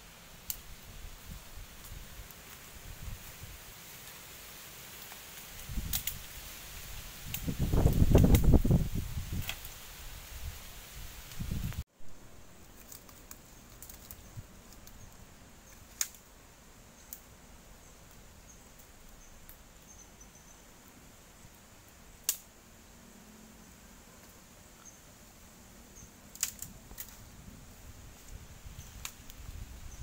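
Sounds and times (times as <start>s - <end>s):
faint steady hiss: 0.0s - 30.0s
dry twigs snapping: 0.4s - 0.7s, 1.7s - 9.8s, 12.6s - 15.1s, 15.7s - 16.3s, 22.2s - 22.5s, 26.3s - 27.2s, 28.2s - 29.6s.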